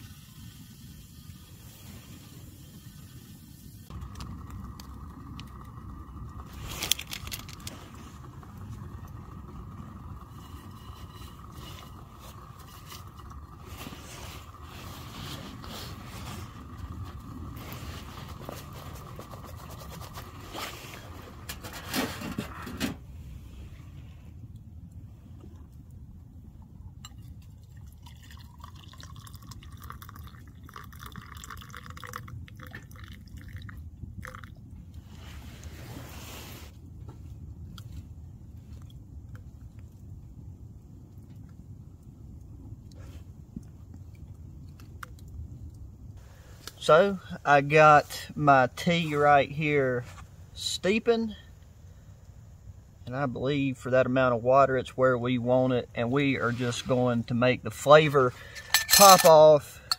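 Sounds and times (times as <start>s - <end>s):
low rumble: 3.8s - 27.7s
water pouring into metal mug: 4.0s - 20.5s, 27.0s - 34.6s
small rustles and clicks: 6.5s - 8.7s.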